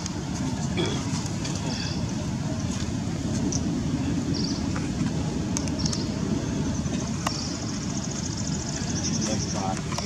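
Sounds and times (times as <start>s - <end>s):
low rumbling noise: 0.0s - 10.0s.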